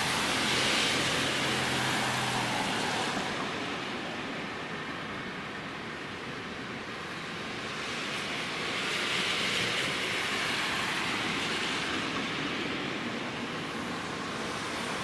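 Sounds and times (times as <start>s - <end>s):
freight train rumble and rail noise: 0.0s - 15.0s.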